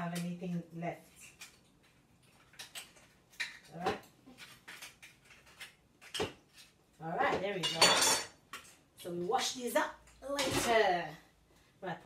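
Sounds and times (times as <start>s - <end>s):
kitchen utensils clicking and knocking: 7.3s - 8.7s.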